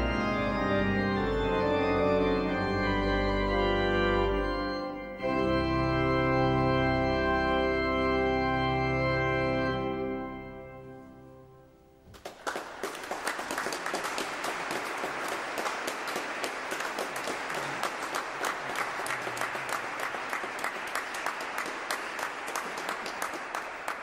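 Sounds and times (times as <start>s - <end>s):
audience applause: 12.1s - 24.0s.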